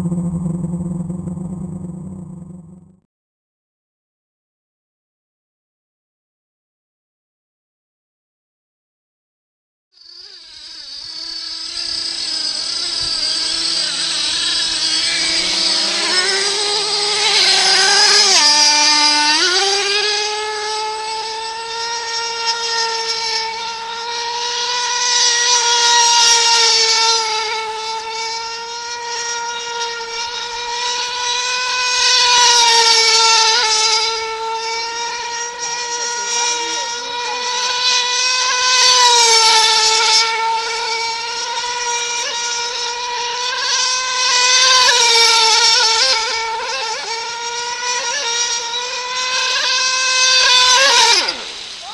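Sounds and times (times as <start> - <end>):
quadcopter propellers whining: 0.0 - 3.0, 10.0 - 51.9.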